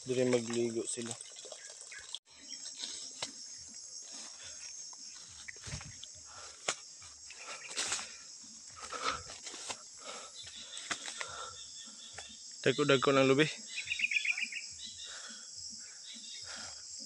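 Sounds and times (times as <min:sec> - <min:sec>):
insects chirring: 0:00.0 - 0:17.0
leaves and stems rustling: 0:02.4 - 0:11.5.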